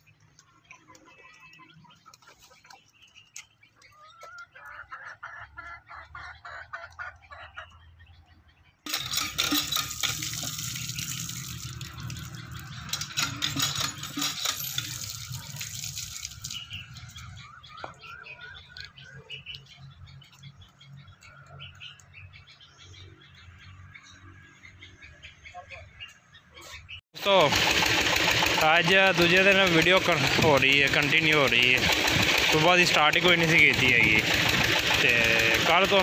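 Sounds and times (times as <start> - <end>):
birds chirping: 0.0 - 36.0
metal pot clattering: 8.9 - 16.1
water running and splashing: 8.9 - 16.9.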